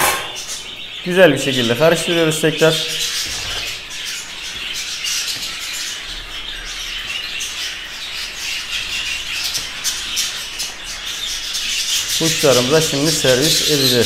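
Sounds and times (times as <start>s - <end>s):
forks scraping in a bowl: 0.0s - 0.5s
budgerigars chattering and squawking: 0.0s - 14.0s.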